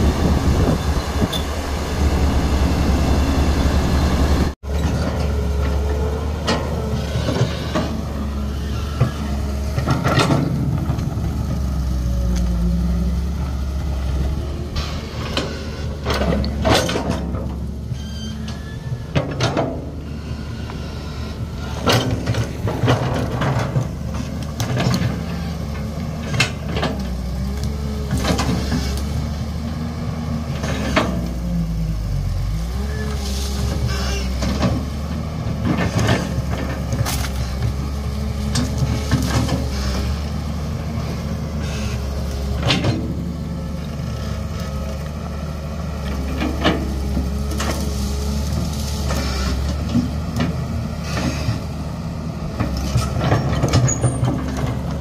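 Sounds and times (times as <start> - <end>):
wavering whine: 0.0 - 4.6
excavator diesel engine running: 0.0 - 55.0.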